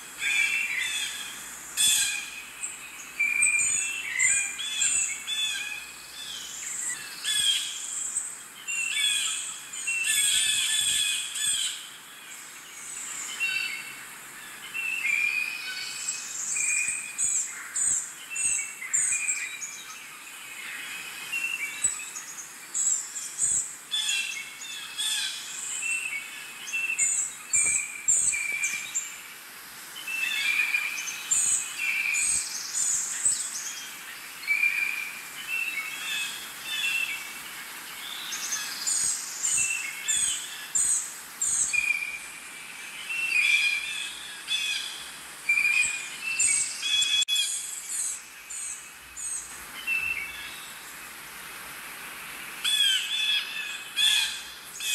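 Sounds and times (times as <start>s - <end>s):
birds chirping and whistling: 0.2s - 11.8s, 21.2s - 29.2s, 30.0s - 37.3s, 38.0s - 50.8s.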